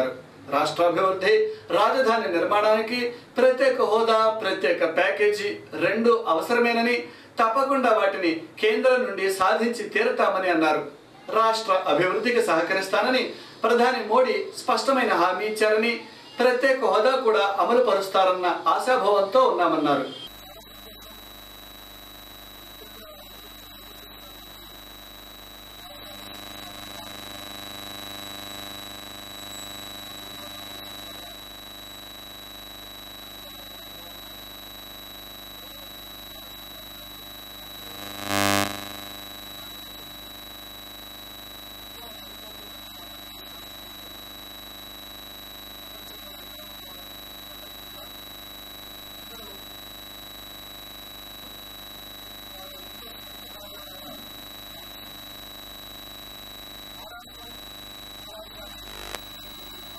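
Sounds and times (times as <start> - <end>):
steady electronic buzz: 20.0 - 59.9
high whine: 20.2 - 59.9.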